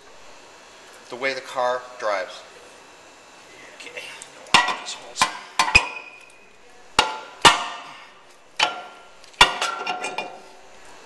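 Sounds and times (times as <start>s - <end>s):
metal disc ringing: 4.6s - 6.4s, 7.0s - 10.6s.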